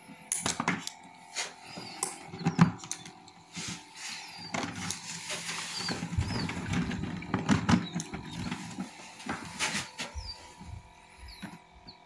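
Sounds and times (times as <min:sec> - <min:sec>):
rustling and bumps: 0:03.5 - 0:10.9.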